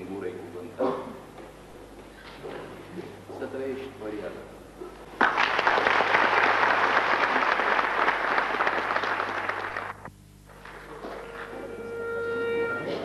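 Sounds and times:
audience applauding: 0:05.2 - 0:10.1
clarinet held note: 0:10.9 - 0:13.0.

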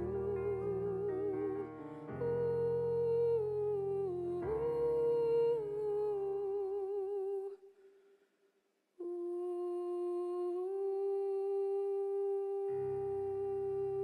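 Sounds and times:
soft accompaniment: 0:00.0 - 0:07.6
woman singing with vibrato: 0:00.0 - 0:07.6, 0:09.0 - 0:14.0.

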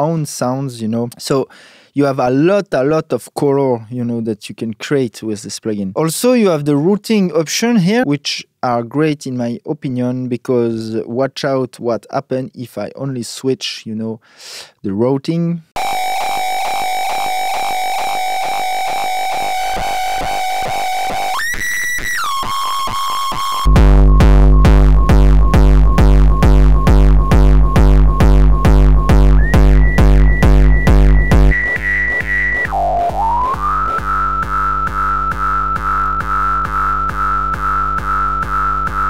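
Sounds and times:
distorted kick drum with ringing tone: 0:15.8 - 0:21.4, 0:23.3 - 0:39.0.

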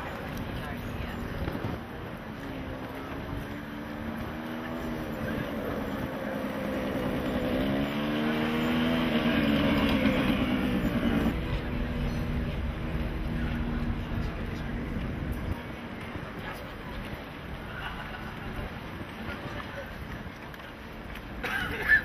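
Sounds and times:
motor engine humming: 0:00.2 - 0:17.5.

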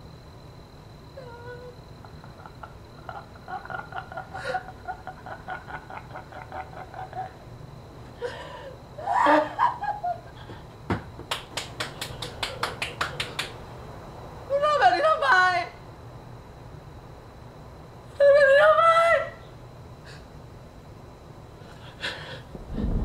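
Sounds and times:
man cackling laugh: 0:02.1 - 0:07.4, 0:09.0 - 0:10.4.

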